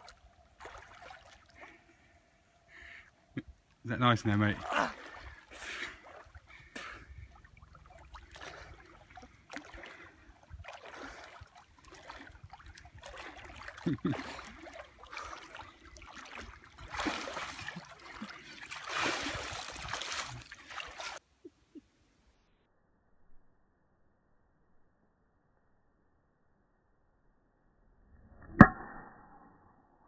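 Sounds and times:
water splashing from swimming: 0:00.0 - 0:02.1, 0:04.4 - 0:21.2.

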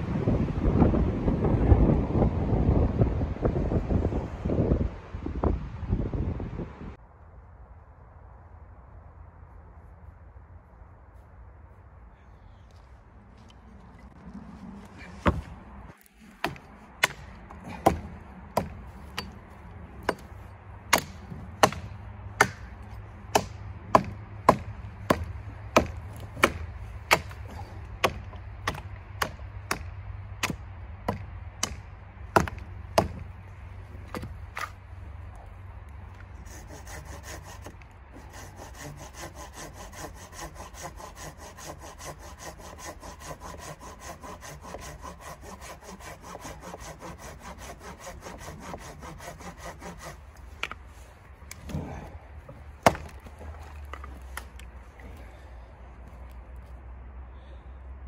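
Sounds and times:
hatchet chopping wood: 0:15.2 - 0:15.5, 0:16.3 - 0:19.4, 0:20.0 - 0:33.3, 0:34.0 - 0:34.8, 0:36.5 - 0:50.8, 0:51.5 - 0:54.7
hand saw rasping through wood: 0:16.4 - 0:19.4, 0:20.9 - 0:22.7, 0:23.3 - 0:29.8, 0:36.4 - 0:50.8, 0:52.8 - 0:54.5.

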